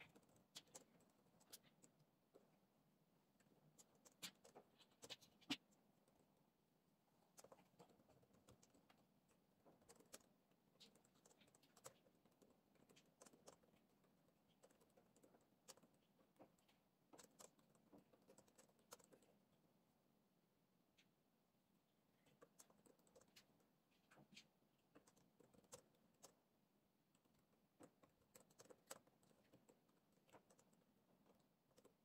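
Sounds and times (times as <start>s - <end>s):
laptop keyboard typing: 0.0s - 2.1s, 7.2s - 19.4s, 22.2s - 26.5s, 27.1s - 32.0s.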